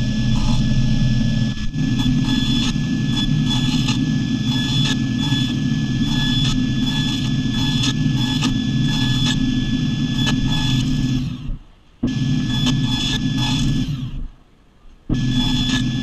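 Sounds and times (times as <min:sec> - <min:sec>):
table saw running: 0:00.0 - 0:11.4, 0:12.1 - 0:14.1, 0:15.1 - 0:16.0
saw blade cutting wood: 0:01.8 - 0:09.5.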